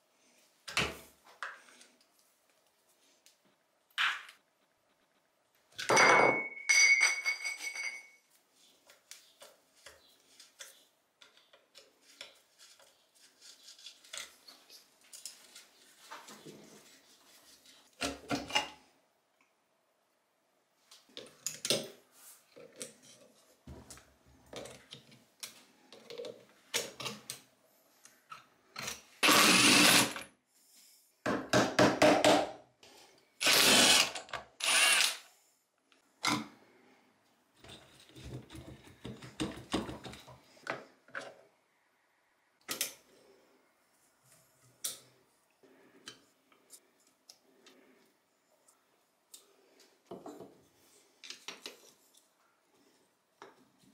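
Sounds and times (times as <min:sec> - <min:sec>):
clinks and knocks of metal tools: 0:05.8 - 0:08.3
power tool bursts: 0:29.2 - 0:30.2, 0:33.4 - 0:35.2.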